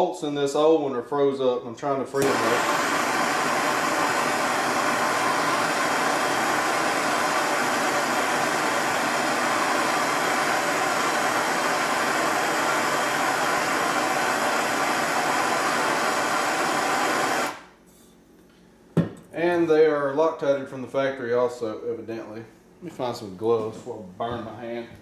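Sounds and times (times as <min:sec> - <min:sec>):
gas torch hissing: 0:02.1 - 0:17.7.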